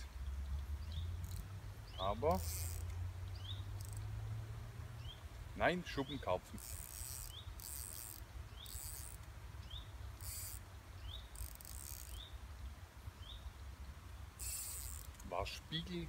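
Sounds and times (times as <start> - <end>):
insect buzzing: 0.8 - 4.4, 6.5 - 12.4, 14.2 - 15.3.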